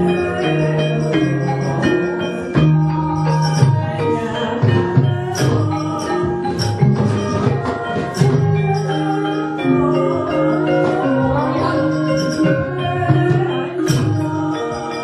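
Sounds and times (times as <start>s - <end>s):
drum and gong: 0.0s - 15.0s
ringing metallophones: 0.0s - 15.0s.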